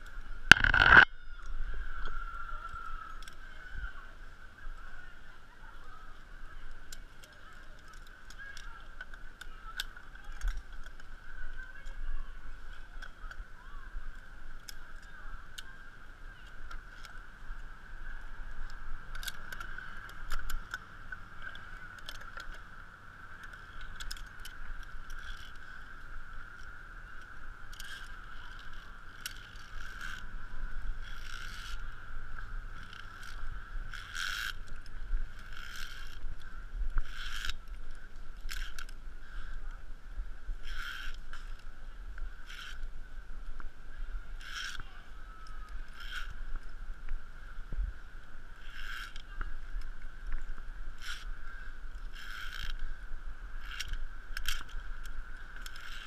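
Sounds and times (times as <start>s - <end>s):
camera handling rumble: 0.0s - 1.5s, 18.5s - 39.7s, 48.6s - 53.0s, 53.6s - 56.0s
climbing gear clinking: 0.0s - 3.4s, 18.6s - 32.0s, 32.6s - 36.4s, 37.0s - 39.5s, 40.6s - 41.7s, 42.4s - 42.9s, 44.4s - 46.7s, 48.6s - 49.4s, 51.0s - 51.3s, 51.9s - 52.8s, 53.6s - 56.0s.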